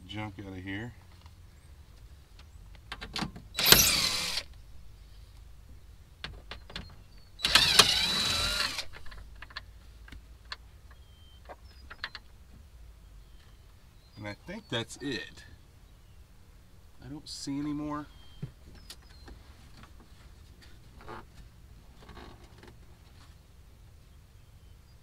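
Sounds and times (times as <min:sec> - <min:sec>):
cordless driver whirring: 0:03.6 - 0:04.5, 0:07.4 - 0:09.0.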